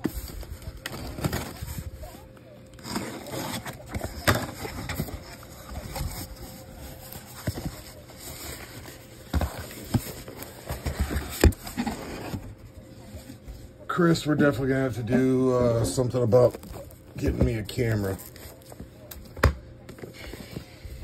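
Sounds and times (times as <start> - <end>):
cardboard scraping and rubbing: 0.0 - 13.6, 15.7 - 19.0.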